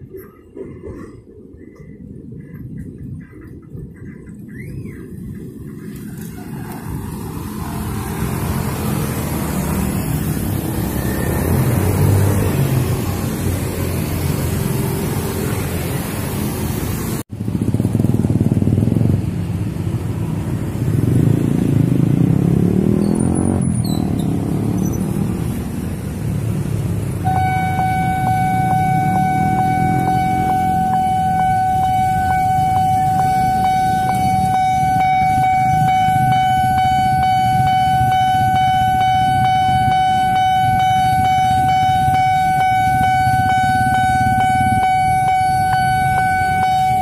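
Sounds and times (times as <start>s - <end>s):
motorbike and car traffic passing: 2.2s - 47.0s
level crossing warning tone: 27.1s - 47.0s.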